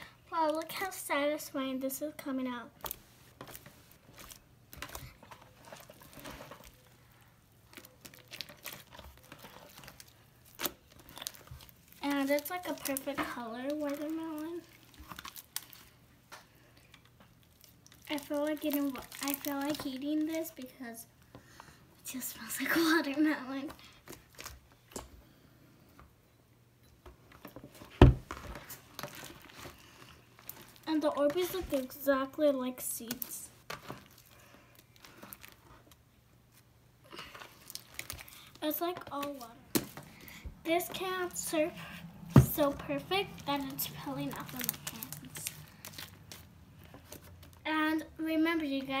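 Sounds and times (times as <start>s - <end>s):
light squishy sounds: 2.8s - 20.4s, 37.1s - 40.4s
slime squelching and crackling: 2.8s - 21.0s, 28.6s - 36.1s, 37.1s - 49.0s
dull thump: 28.0s - 28.4s.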